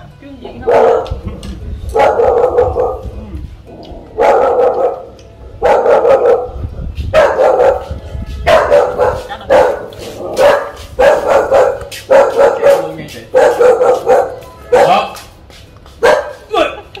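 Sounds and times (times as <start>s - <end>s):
dog barking: 0.6s - 1.2s, 1.9s - 3.1s, 4.2s - 15.2s, 16.0s - 16.4s.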